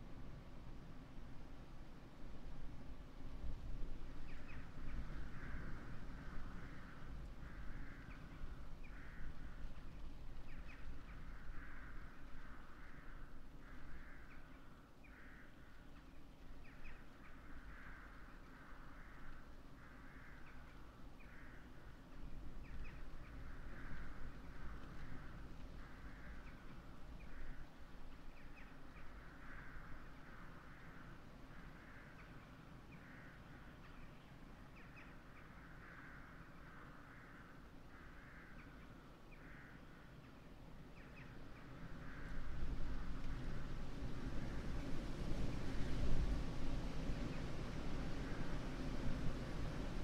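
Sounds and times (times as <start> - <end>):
crows cawing: 5.3 - 9.6, 11.2 - 15.8, 17.4 - 21.9, 29.1 - 32.2, 33.0 - 33.7, 35.5 - 40.2
wind on microphone: 42.0 - 50.0.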